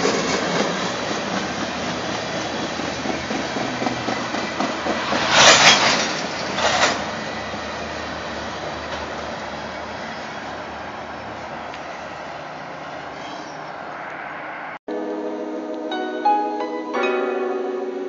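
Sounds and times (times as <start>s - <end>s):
freight train wheels on rails: 0.0s - 14.8s.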